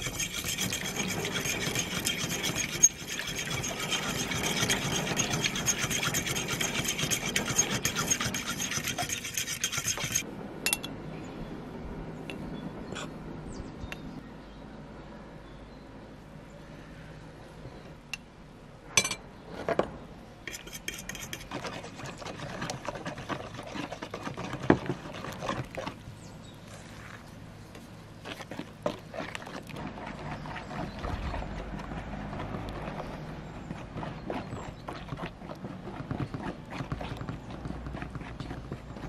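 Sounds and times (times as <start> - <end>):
wooden spoon stirring batter: 0.0 - 10.2, 20.5 - 26.2, 27.7 - 39.0
metal spoon scraping glass: 0.0 - 10.9, 20.5 - 24.6.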